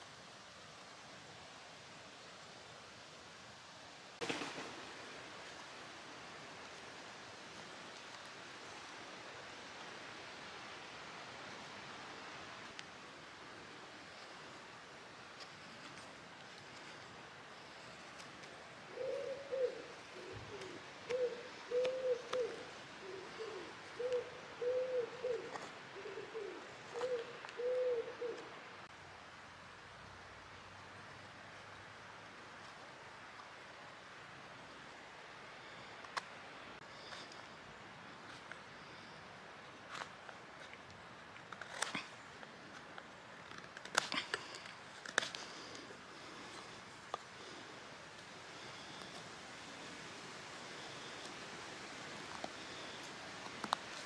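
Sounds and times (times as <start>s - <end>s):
pigeon cooing: 18.9s - 28.5s.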